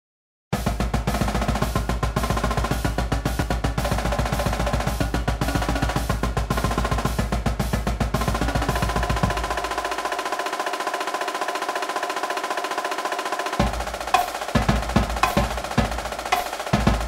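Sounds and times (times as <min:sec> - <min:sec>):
snare and tenor drums: 0:00.5 - 0:17.0
bass drums: 0:00.6 - 0:10.1, 0:13.6 - 0:17.0.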